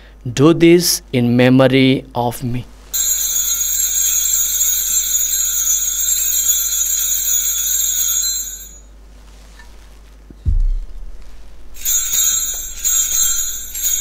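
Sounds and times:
altar bells jingling: 3.0 - 8.9, 11.8 - 14.0.

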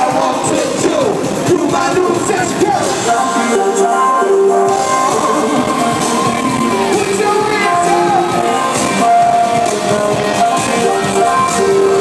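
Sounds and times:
loud electro-pop music: 0.0 - 12.0
person singing: 2.8 - 12.0.

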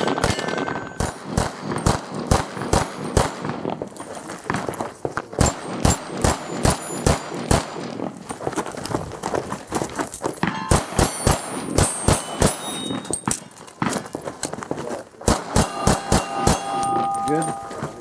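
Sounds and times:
steel plates ringing: 0.0 - 1.0, 10.4 - 13.6, 15.5 - 18.0.

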